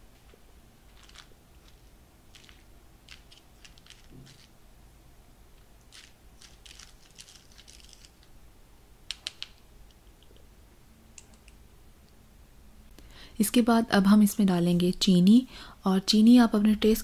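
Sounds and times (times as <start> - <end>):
spatula rustling through sieve: 0.0 - 4.6.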